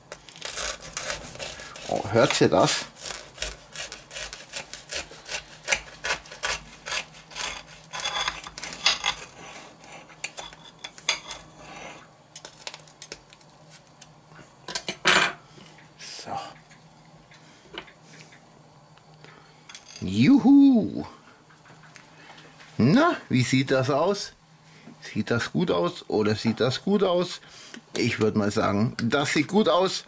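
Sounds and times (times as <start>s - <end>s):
toasted crust crunching: 0.0s - 11.5s, 12.3s - 14.2s
knife scraping ceramic plate: 4.2s - 12.0s.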